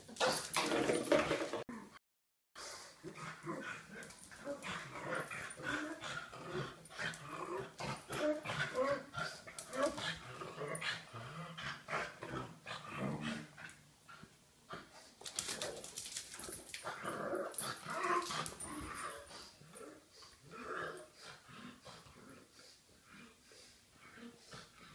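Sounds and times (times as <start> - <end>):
dogs growling and barking: 3.0 - 22.5.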